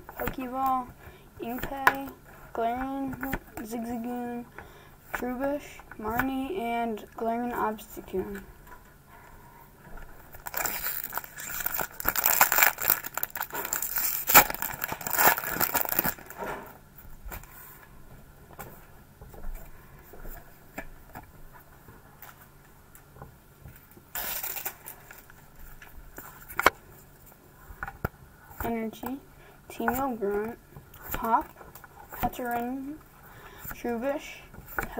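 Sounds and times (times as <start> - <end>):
foil wrapper crinkling and tearing: 10.4 - 16.4, 24.1 - 25.3.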